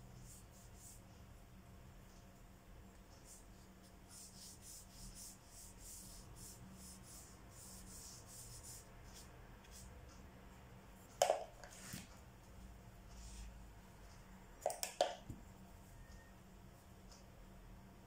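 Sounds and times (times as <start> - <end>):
brush strokes on paper: 0.2 - 1.2, 3.2 - 10.0, 13.0 - 14.2.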